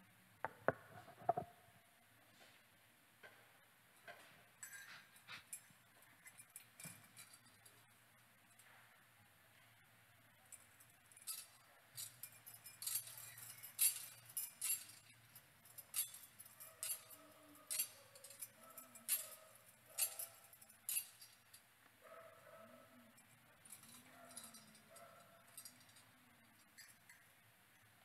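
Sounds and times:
metal censer clinking on chains: 0:04.0 - 0:08.7, 0:10.4 - 0:21.7, 0:22.4 - 0:27.8.

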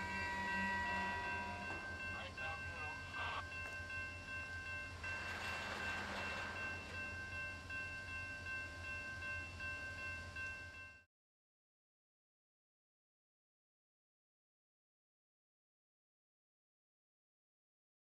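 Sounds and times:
train wheels rumbling on rail: 0:00.0 - 0:09.2
railroad crossing bell ringing: 0:00.0 - 0:11.1.

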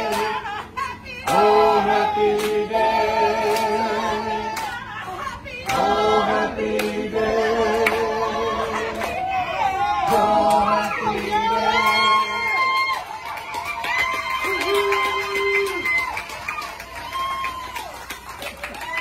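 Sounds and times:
group singing without instruments: 0:00.0 - 0:13.1.

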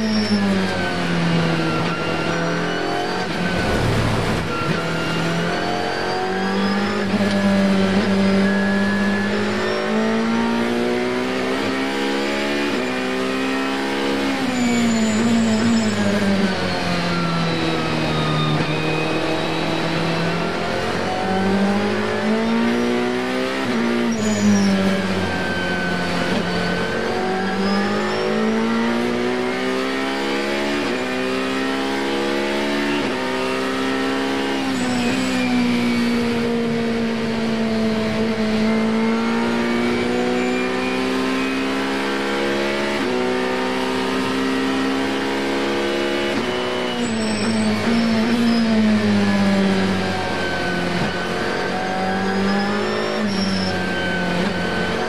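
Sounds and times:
race car engine: 0:00.0 - 0:55.0.

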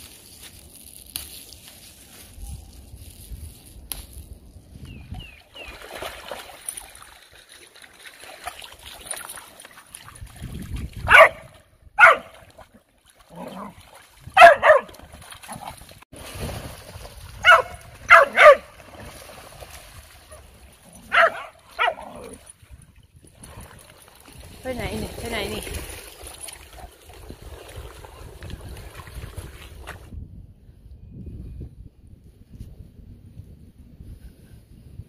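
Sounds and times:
splashing in shallow water: 0:00.0 - 0:30.2
dogs barking and yipping: 0:11.1 - 0:12.3, 0:14.4 - 0:15.8, 0:17.4 - 0:18.7, 0:20.3 - 0:22.4.

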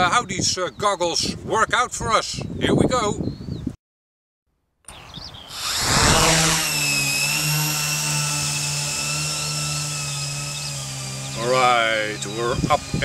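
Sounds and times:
drone motors whining: 0:05.5 - 0:12.0.

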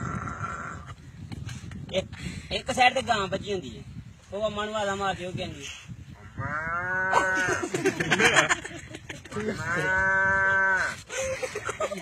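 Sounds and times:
man imitating cow mooing: 0:09.5 - 0:10.9.

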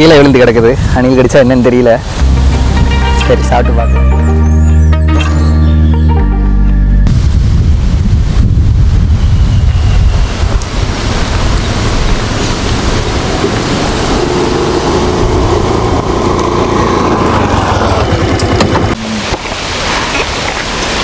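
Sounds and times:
wind on microphone: 0:00.0 - 0:03.4, 0:07.0 - 0:21.0
scooter engine running: 0:12.2 - 0:19.0.

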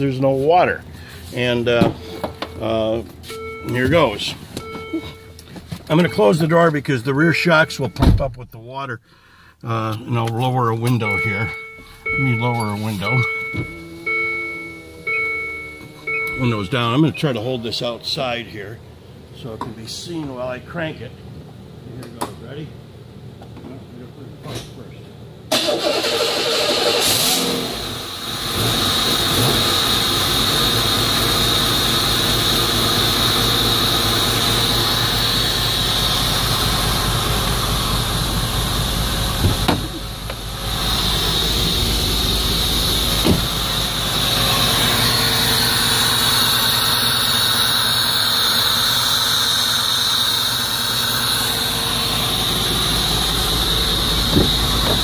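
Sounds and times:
car engine cranking and idling: 0:00.0 - 0:08.8, 0:09.5 - 0:20.6, 0:25.5 - 0:55.0.

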